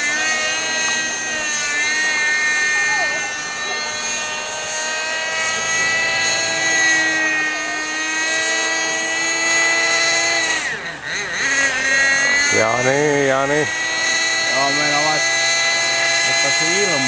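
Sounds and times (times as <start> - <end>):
model helicopter engine whine: 0.0 - 17.0.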